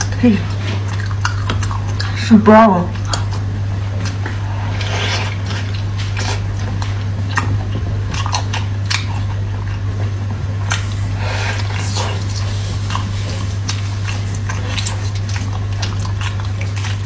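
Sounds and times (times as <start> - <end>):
wet chewing and mouth smacks: 0.0 - 2.2, 2.9 - 17.0
steady low hum: 0.0 - 17.0.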